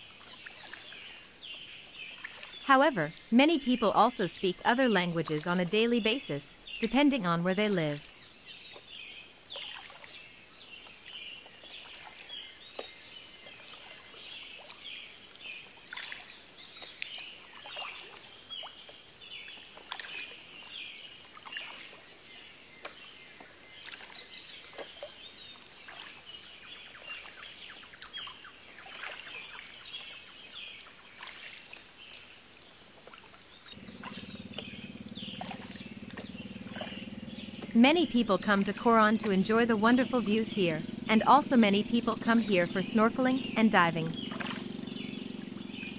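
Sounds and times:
high insect drone: 32.2 - 45.9
bird chirps and calls: 33.8 - 45.9
low steady hum: 33.8 - 45.9.

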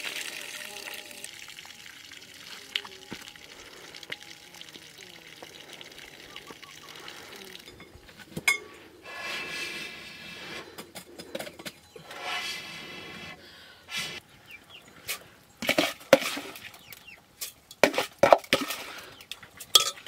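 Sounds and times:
liquid pouring: 0.0 - 8.6
water trickling and splashing: 0.0 - 8.6, 15.6 - 20.0
cookware clinking: 7.7 - 8.8, 19.7 - 20.0.

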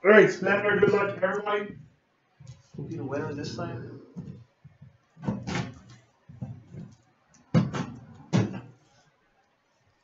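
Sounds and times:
sharp knocks: 7.5 - 8.7.

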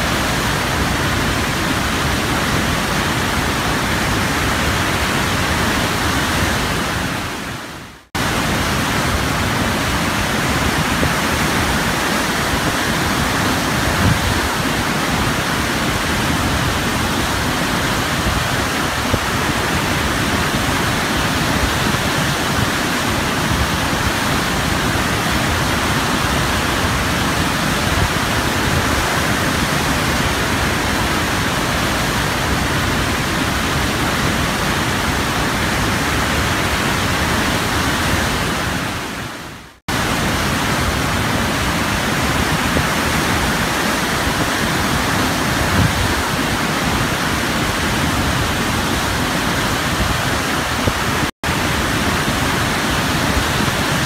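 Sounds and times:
whitewater rushing: 0.0 - 54.0.

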